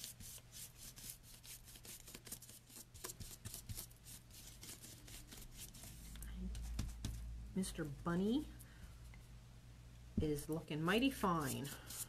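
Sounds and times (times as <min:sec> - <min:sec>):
dry brush scrubbing painted surface: 0:00.0 - 0:06.8, 0:11.2 - 0:12.0.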